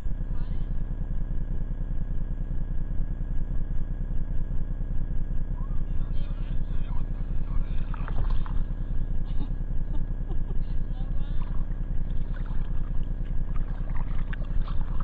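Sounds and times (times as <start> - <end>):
faint voices: 5.5 - 8.9, 10.5 - 11.9.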